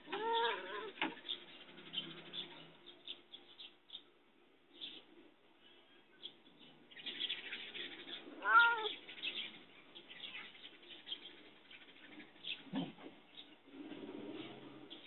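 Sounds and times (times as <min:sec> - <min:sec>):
cat meowing loudly: 0:00.1 - 0:01.0, 0:08.4 - 0:09.0.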